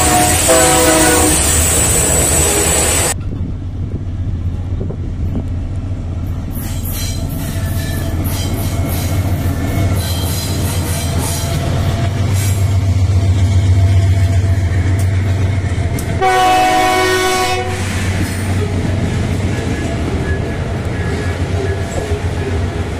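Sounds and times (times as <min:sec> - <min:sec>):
locomotive horn: 0:00.0 - 0:03.2, 0:16.2 - 0:18.1
diesel locomotive engine rumble: 0:00.0 - 0:22.9
train wheels clicking over rails: 0:06.5 - 0:16.2.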